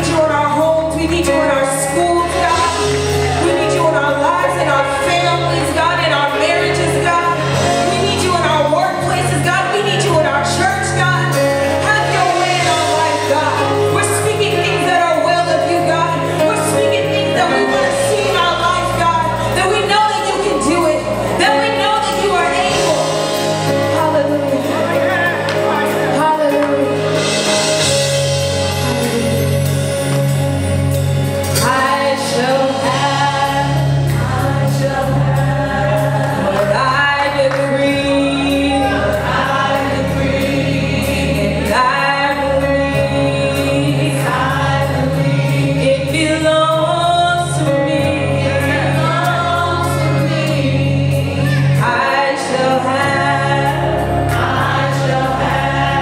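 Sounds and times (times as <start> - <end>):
instrumental backing with bass line: 0.0 - 56.0
group singing gospel: 31.4 - 56.0.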